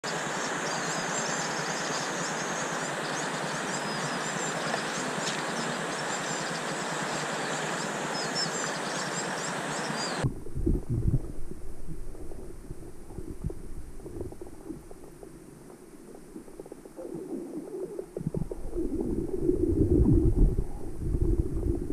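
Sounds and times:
underwater rumbles and knocks: 0:10.2 - 0:21.9.

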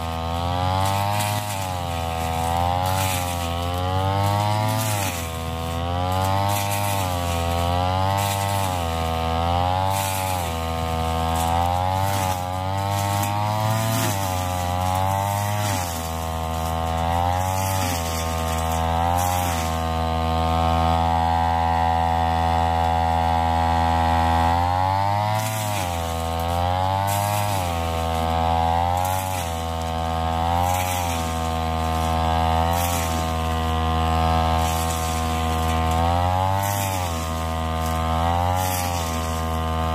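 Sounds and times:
brush cutter engine revving: 0:00.0 - 0:39.9.

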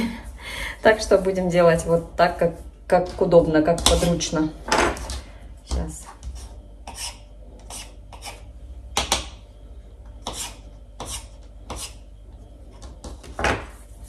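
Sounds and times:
dough scraped and rubbed by hand: 0:06.0 - 0:08.5, 0:10.2 - 0:12.0.

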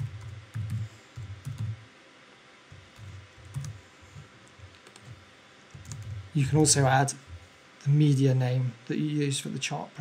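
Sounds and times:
typing on computer keyboard: 0:00.0 - 0:01.8, 0:02.9 - 0:03.8, 0:04.8 - 0:06.2.

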